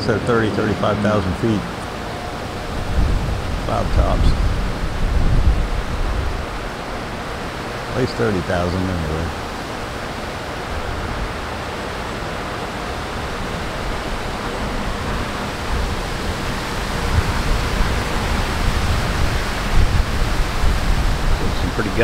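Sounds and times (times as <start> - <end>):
gusty wind on microphone: 0.0 - 8.2, 8.8 - 22.0.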